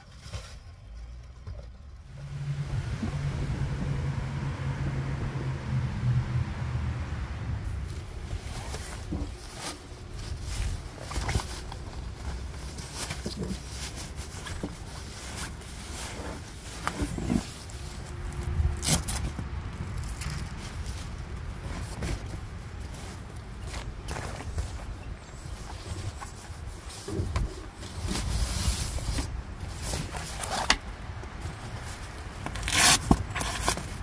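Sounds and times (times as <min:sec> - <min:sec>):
low rumble: 0:01.3 - 0:09.3
nylon sack rustling and crinkling: 0:07.6 - 0:34.0.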